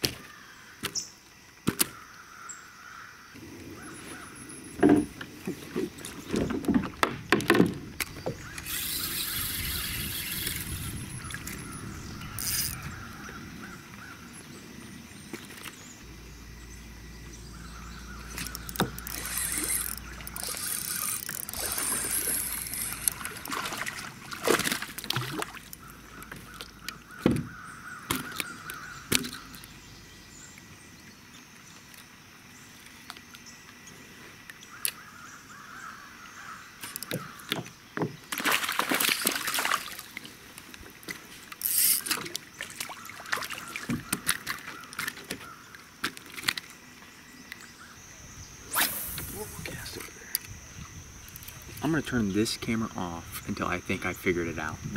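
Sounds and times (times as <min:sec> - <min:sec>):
fishing reel whir: 0:08.4 - 0:13.7, 0:17.7 - 0:26.3, 0:41.5 - 0:42.3, 0:48.6 - 0:50.6
splashing: 0:17.7 - 0:29.6, 0:38.3 - 0:46.8.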